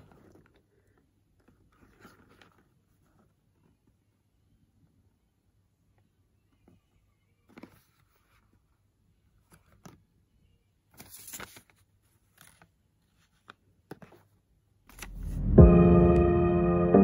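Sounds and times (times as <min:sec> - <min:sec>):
paper and cardboard handling: 0:00.0 - 0:03.9, 0:10.9 - 0:15.2.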